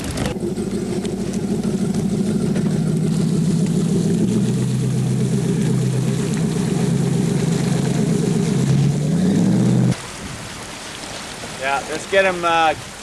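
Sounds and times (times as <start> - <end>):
outboard motor running: 0.0 - 10.0.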